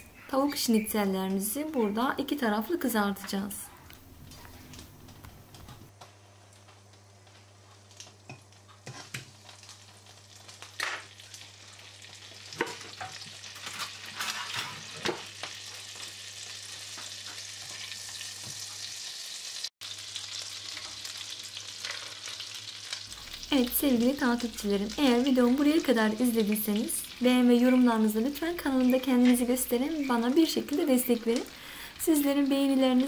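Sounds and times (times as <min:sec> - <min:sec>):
butter sizzling in frying pan: 0:06.6 - 0:33.0.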